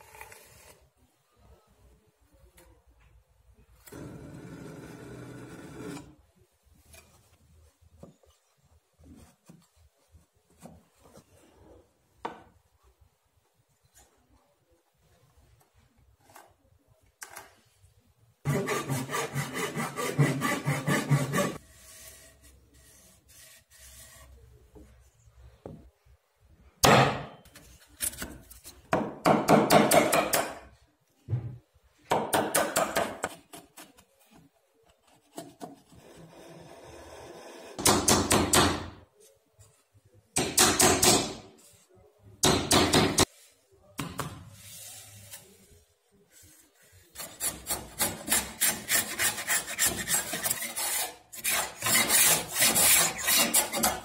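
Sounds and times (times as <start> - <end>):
knocks and handling of wood: 6.8 - 11.5, 12.2 - 12.7, 26.8 - 36.0
chisel cutting and scraping wood: 18.5 - 24.4, 35.0 - 37.9, 47.1 - 54.0.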